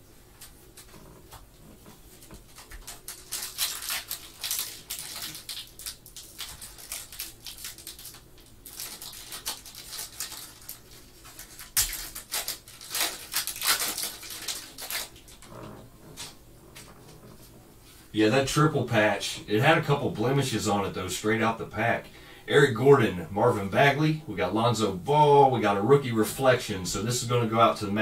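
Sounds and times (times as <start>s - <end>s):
foil wrapper crinkling and tearing: 2.1s - 16.3s.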